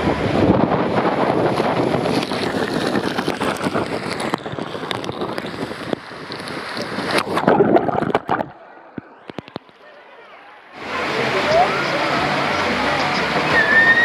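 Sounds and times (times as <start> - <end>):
wind buffeting microphone: 0.0 - 8.6
rushing water on slide: 0.0 - 14.0.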